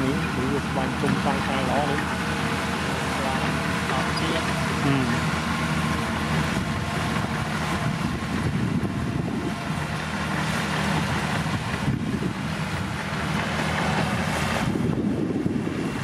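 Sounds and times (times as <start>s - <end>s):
bulldozer diesel engine running: 0.0s - 16.0s.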